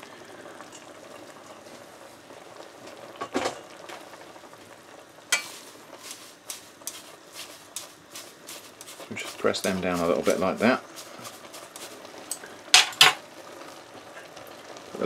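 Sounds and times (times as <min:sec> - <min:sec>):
faint sizzle from pot: 0:00.0 - 0:15.0
leaves rustling: 0:05.4 - 0:12.4.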